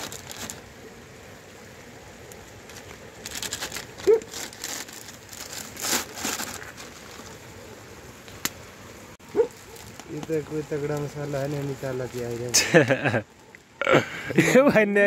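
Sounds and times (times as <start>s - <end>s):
plastic packets crinkling: 0.0s - 0.6s, 2.6s - 7.4s, 9.5s - 12.7s.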